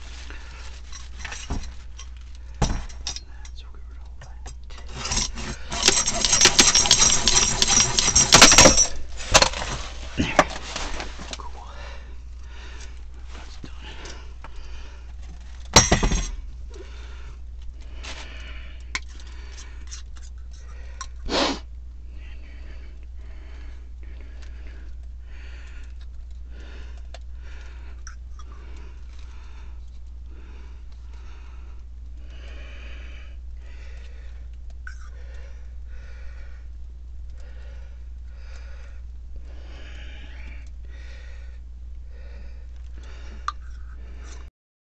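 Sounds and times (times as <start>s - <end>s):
person breathing heavily: 0.0s - 44.5s
steady low hum: 0.0s - 44.5s
sharp clatter of knocks: 4.9s - 10.4s.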